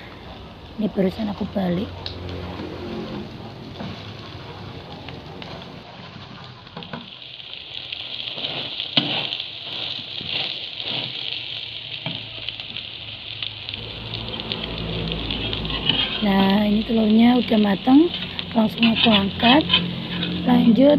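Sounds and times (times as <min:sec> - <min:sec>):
omelette sizzling in hot oil: 0:00.0 - 0:20.9
metal spatula scraping a pan: 0:08.4 - 0:11.3, 0:15.3 - 0:20.9.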